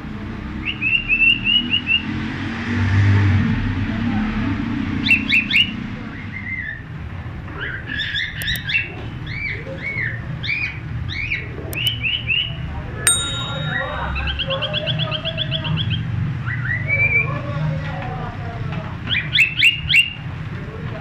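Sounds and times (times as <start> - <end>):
brief chime: 13.1 - 14.3.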